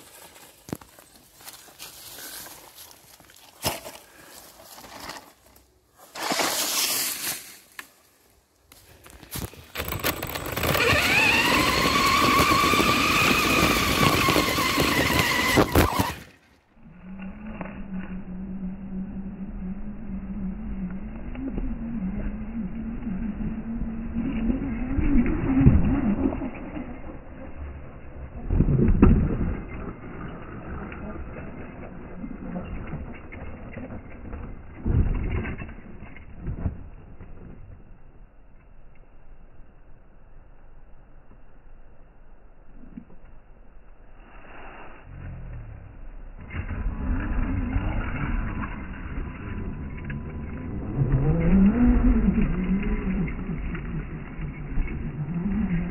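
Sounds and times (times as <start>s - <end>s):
tyre noise on dirt: 0.0s - 16.8s
gravel crunching: 0.0s - 18.7s, 20.4s - 39.0s
toy truck thudding and tumbling: 4.7s - 7.9s, 9.0s - 16.5s, 28.4s - 37.8s
low steady hum: 7.3s - 55.9s
rc car motor whining: 9.7s - 16.4s, 46.4s - 55.9s.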